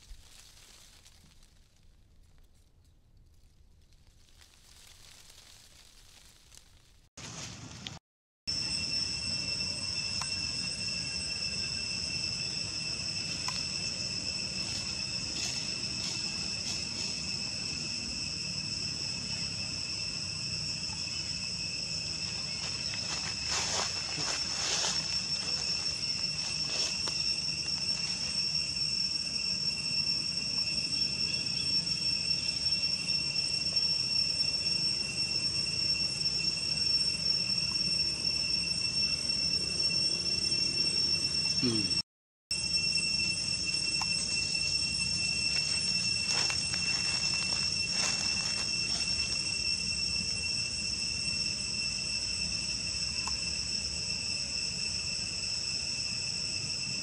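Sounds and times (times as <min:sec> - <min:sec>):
short crackles: 0:00.0 - 0:08.0
insects droning: 0:07.2 - 0:57.0.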